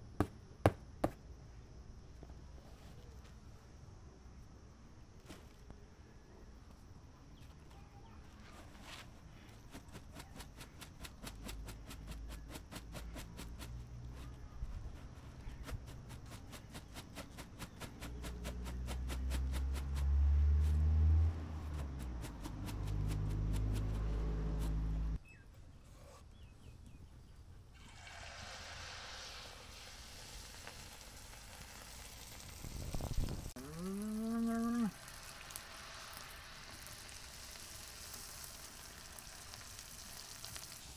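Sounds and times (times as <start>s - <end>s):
cow mooing: 33.6s - 35.0s.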